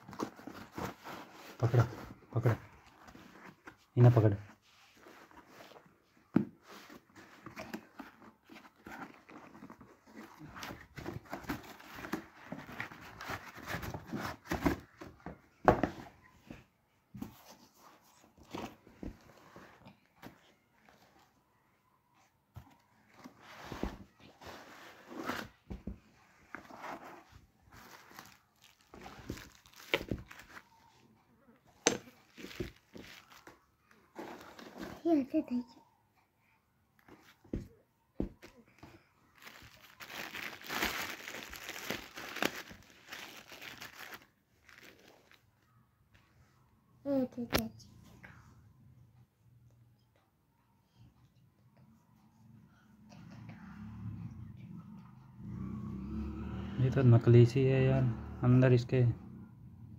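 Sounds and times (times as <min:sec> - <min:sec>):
cardboard rustling and scraping: 0:00.0 - 0:02.2, 0:23.1 - 0:30.6
plastic wrapping crinkling: 0:27.7 - 0:30.7, 0:32.2 - 0:33.6, 0:39.4 - 0:45.4.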